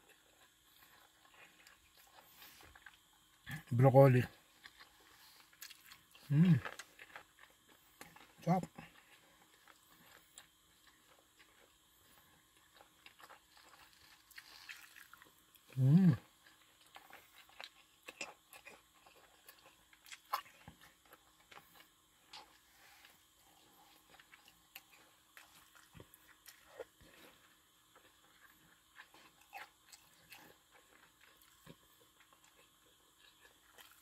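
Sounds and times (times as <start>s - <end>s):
person chewing food: 0.0s - 3.7s, 4.3s - 34.0s
short vocal sound: 6.3s - 6.6s, 15.8s - 16.2s.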